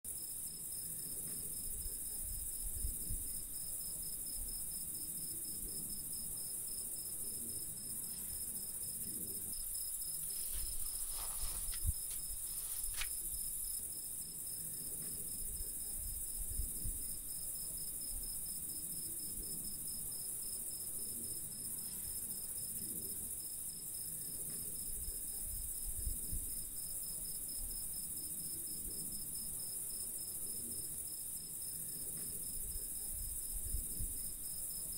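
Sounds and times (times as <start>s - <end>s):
crickets trilling: 0.1s - 34.9s
soft low thumps: 9.5s - 13.7s.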